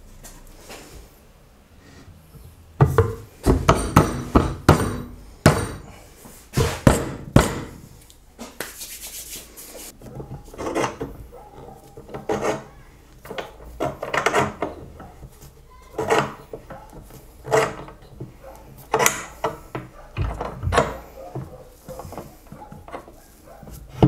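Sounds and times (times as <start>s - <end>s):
sharp wooden knocks: 2.8s - 5.9s, 6.6s - 7.9s
wood rubbing and shifting: 9.8s - 24.0s.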